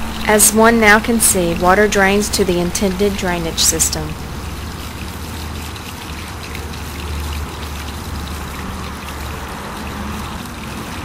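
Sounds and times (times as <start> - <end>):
constant low rumble: 0.0 - 6.8
water rushing over pavement: 0.0 - 11.0.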